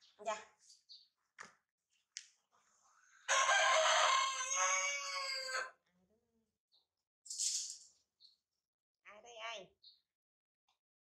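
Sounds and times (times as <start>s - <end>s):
rooster crowing: 3.3s - 5.8s.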